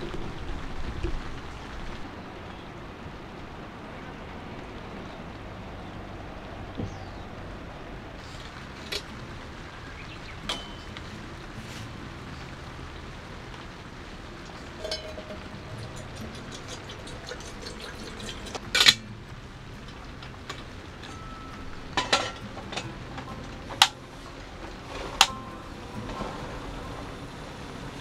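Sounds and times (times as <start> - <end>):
rain pattering on tent: 0.0 - 28.0
sharp metallic clank: 10.5 - 10.9
water pouring into metal kettle: 13.5 - 26.2.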